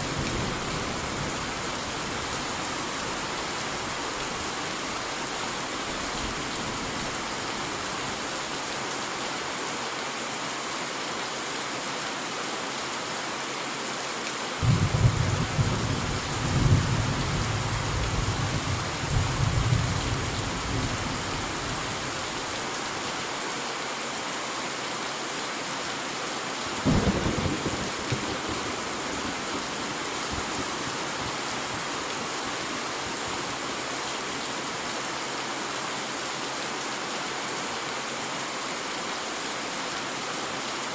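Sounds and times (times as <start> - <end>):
heavy rain: 0.0 - 40.9
rolling thunder rumble: 14.6 - 20.1, 26.8 - 29.7
sharp thunder clap: 26.9 - 28.6.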